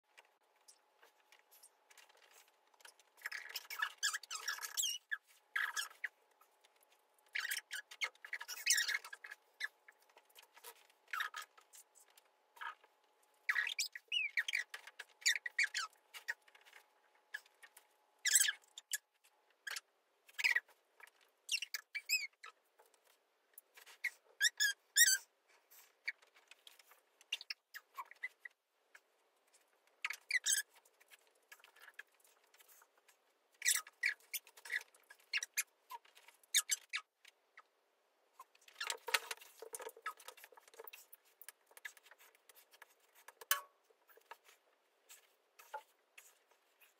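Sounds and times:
high-pitched squeaks: 2.0 - 6.2, 7.3 - 9.8, 18.2 - 19.1.

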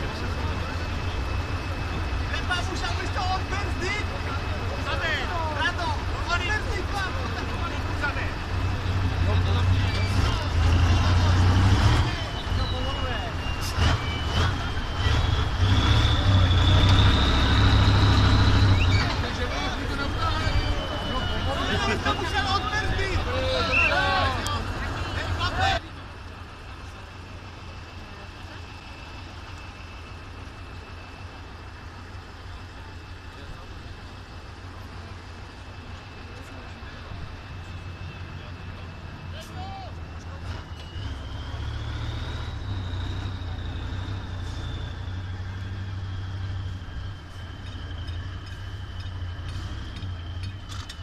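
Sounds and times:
truck engine idling: 0.0 - 51.0.

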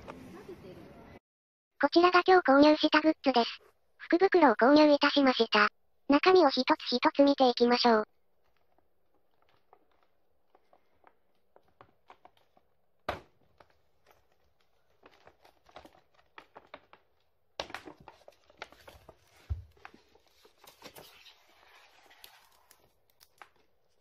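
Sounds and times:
paper bag rustling and crinkling: 8.4 - 23.2.

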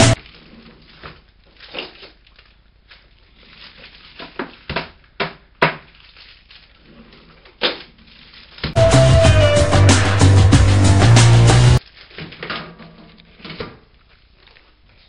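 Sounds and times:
background music: 8.8 - 11.8.

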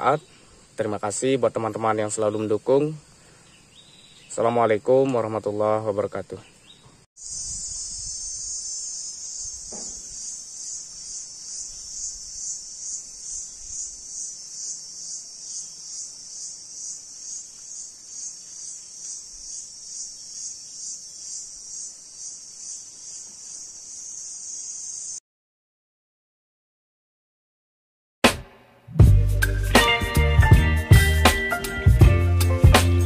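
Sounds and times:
insects shrilling: 7.2 - 25.2.

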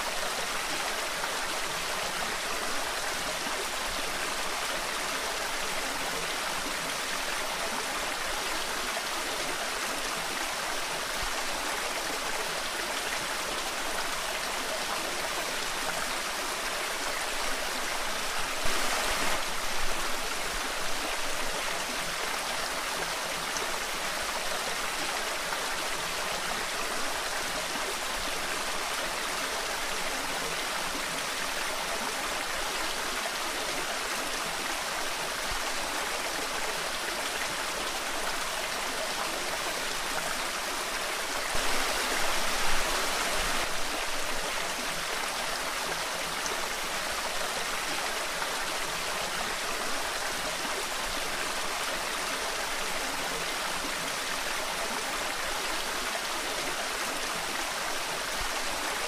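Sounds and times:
waterfall rushing: 15.2 - 22.6, 34.8 - 59.0.

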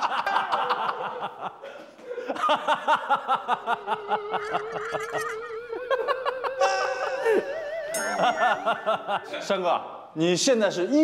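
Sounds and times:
group of people laughing: 0.0 - 9.5
voice holding a wavering note: 4.1 - 8.4.

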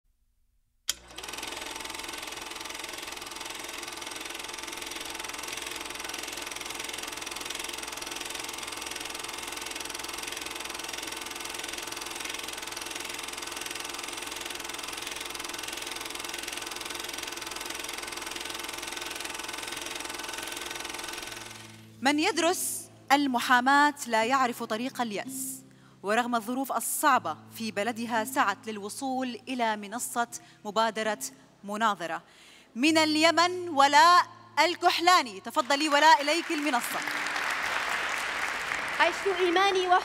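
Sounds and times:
film projector running: 0.9 - 22.0.

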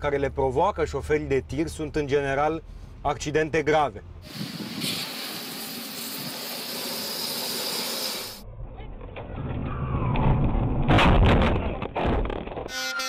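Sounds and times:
truck and road noise: 0.0 - 8.4
fire hose spraying water: 4.2 - 8.4
loud crash with sharp impacts: 10.3 - 12.7.

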